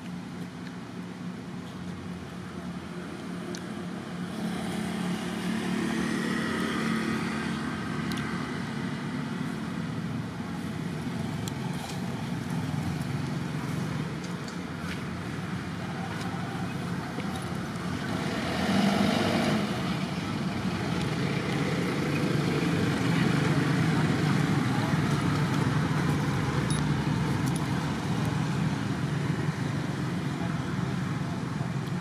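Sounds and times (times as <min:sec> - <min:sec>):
outdoor background noise: 0:00.0 - 0:32.0
vehicle engine passing: 0:04.2 - 0:31.7.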